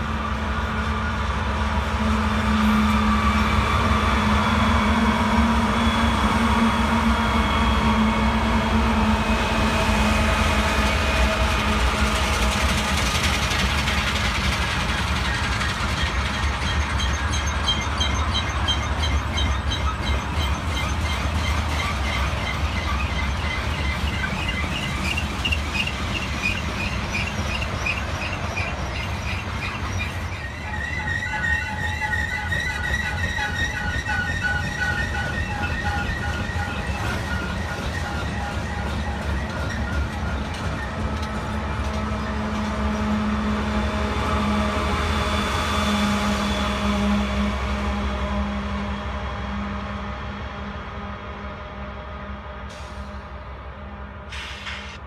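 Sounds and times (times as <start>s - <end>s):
diesel locomotives droning: 0.0s - 55.0s
high wheel squeal: 14.7s - 42.4s.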